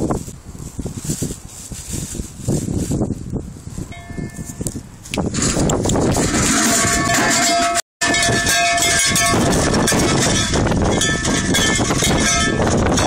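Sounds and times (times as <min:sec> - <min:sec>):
bells and bucket jangling: 0:03.9 - 0:04.7, 0:05.3 - 0:13.0.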